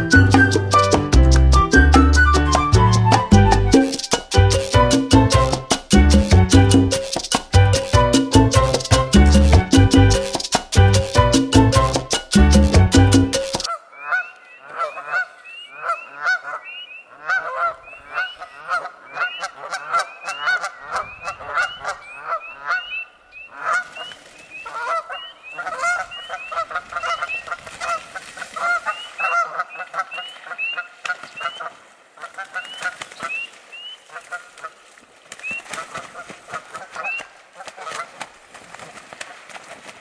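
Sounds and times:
geese honking: 13.7s - 34.8s.

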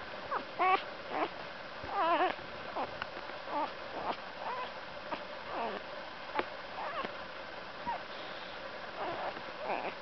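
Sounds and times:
puppy crying and squeaking: 0.3s - 1.3s, 1.9s - 2.9s, 3.5s - 5.8s, 6.8s - 7.1s, 9.0s - 10.0s.

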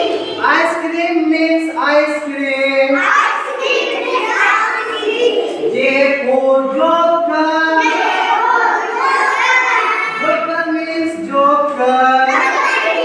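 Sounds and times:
children singing in unison: 0.0s - 0.7s, 2.8s - 10.5s, 11.1s - 13.0s.

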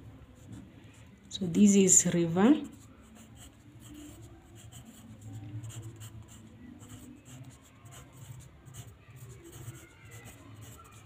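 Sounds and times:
pencil scratching on paper: 2.6s - 11.0s.

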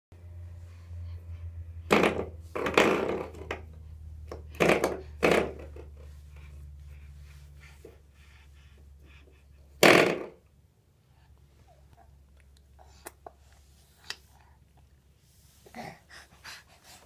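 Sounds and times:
low hum: 0.1s - 9.2s.

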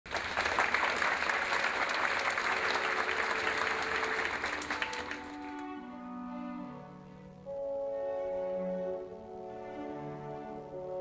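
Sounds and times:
audience applauding: 0.1s - 5.8s
orchestra playing soft held notes: 2.0s - 11.0s.

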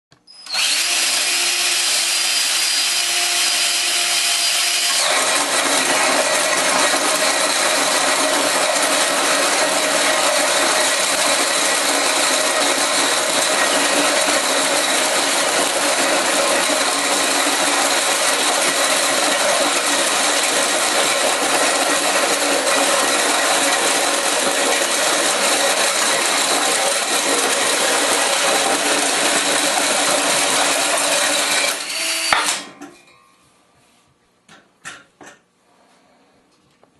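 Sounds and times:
drill motor whine: 0.3s - 32.6s
hole saw grinding through wood: 0.4s - 32.6s.

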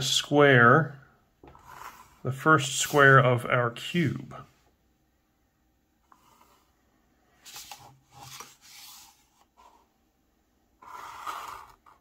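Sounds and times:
pencil drawing lines on paper: 1.5s - 3.2s, 6.0s - 6.8s, 7.4s - 9.9s, 10.8s - 12.0s.

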